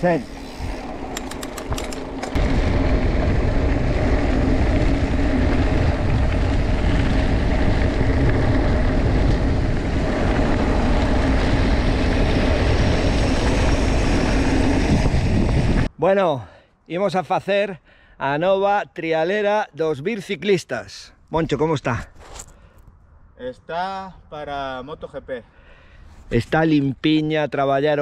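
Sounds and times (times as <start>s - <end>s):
bike tyres rumbling on track: 0.0s - 15.9s
wind buffeting microphone: 0.4s - 15.9s
sharp clicks: 1.0s - 2.4s.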